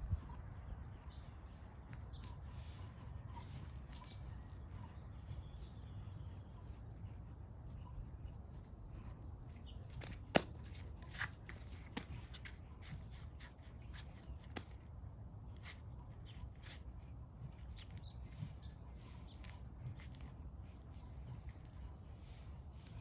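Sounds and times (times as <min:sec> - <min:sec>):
low outdoor rumble: 0:00.0 - 0:23.0
stick clicks and taps: 0:09.9 - 0:14.8.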